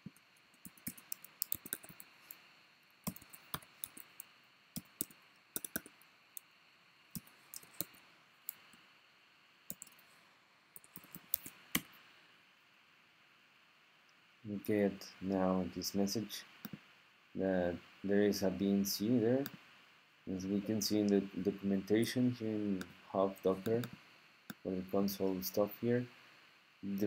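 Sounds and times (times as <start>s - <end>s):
computer keyboard typing: 0.1s - 2.1s, 3.0s - 6.0s, 7.2s - 8.6s, 9.7s - 10.0s, 10.8s - 11.9s.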